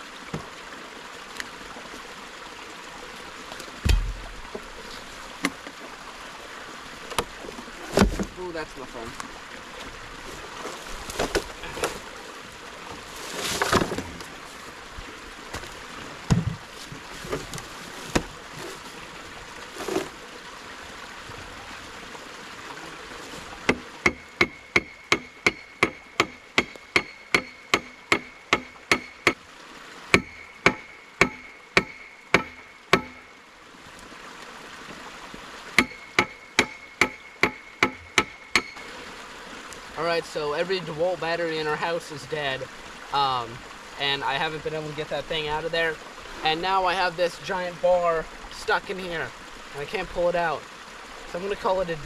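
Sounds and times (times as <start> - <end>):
metal bar knocking with ringing: 30.2 - 33.2, 35.8 - 38.8.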